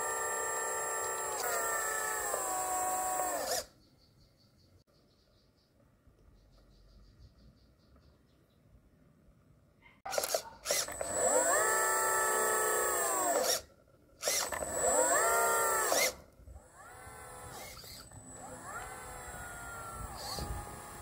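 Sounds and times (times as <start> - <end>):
electric motor whining: 0.0 - 3.7, 10.2 - 21.0.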